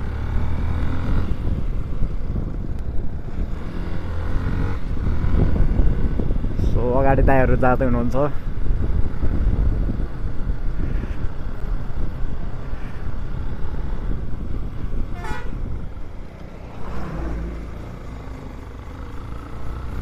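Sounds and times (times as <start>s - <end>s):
wind and road noise: 0.0s - 20.0s
short high horn toot: 15.2s - 15.6s.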